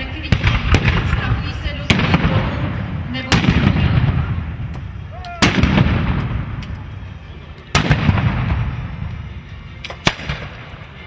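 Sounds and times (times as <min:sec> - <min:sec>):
gunpowder bangs with echo: 0:00.2 - 0:04.4, 0:05.4 - 0:06.6, 0:07.7 - 0:08.8, 0:09.8 - 0:10.7.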